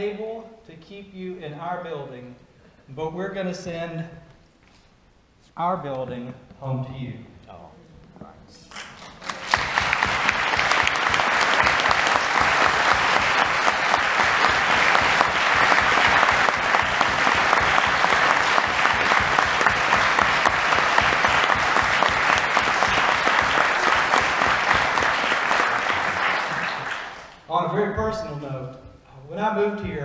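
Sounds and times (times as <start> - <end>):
crowd applauding: 8.7 - 27.5.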